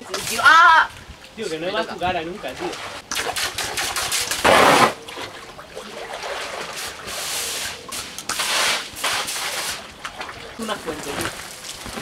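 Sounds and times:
garden hose spraying water: 0:00.0 - 0:00.9, 0:06.5 - 0:10.0, 0:10.6 - 0:12.0
people splashing in pool: 0:02.2 - 0:12.0
loud water splash: 0:02.6 - 0:07.3.

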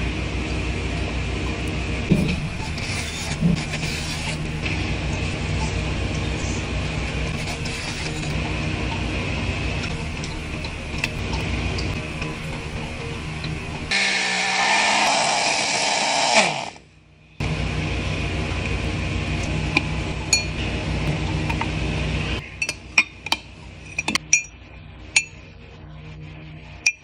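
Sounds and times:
background music: 0:04.0 - 0:15.9
small motor whirring: 0:09.8 - 0:16.9.

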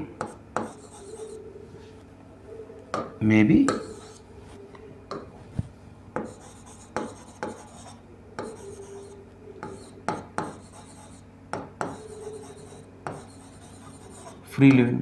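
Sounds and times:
marker writing on whiteboard: 0:00.2 - 0:01.4, 0:03.7 - 0:04.2, 0:06.2 - 0:14.4.

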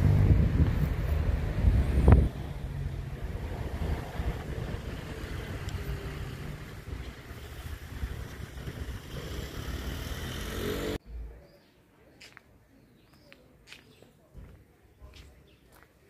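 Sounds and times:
vehicle engine rising in pitch: 0:00.0 - 0:11.0
rumble of motor traffic: 0:00.0 - 0:11.4.

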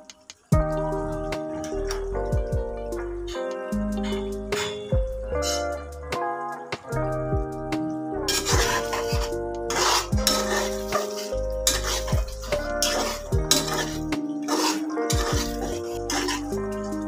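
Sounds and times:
background music: 0:00.0 - 0:17.0
utensil scraping saucepan: 0:08.3 - 0:17.0.

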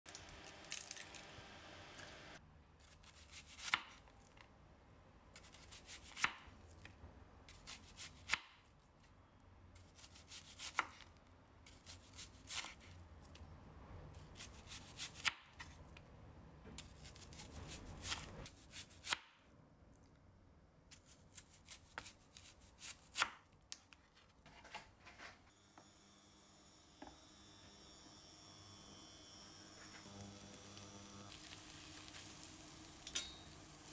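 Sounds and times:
knife slicing onion on board: 0:05.4 - 0:06.8, 0:09.8 - 0:11.1, 0:11.7 - 0:13.0, 0:14.2 - 0:15.8, 0:16.8 - 0:19.4, 0:20.9 - 0:23.4
butter sizzling in a frying pan: 0:27.6 - 0:33.9.

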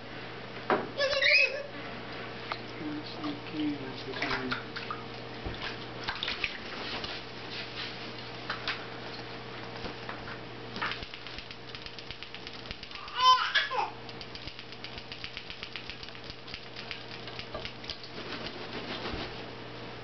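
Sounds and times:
rapid light clicking: 0:10.8 - 0:13.2, 0:14.0 - 0:18.2.

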